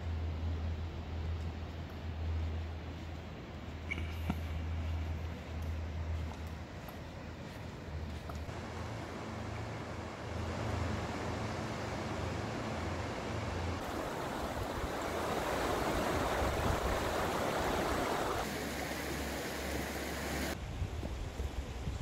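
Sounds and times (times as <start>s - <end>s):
river water rushing over stones: 8.5s - 20.6s.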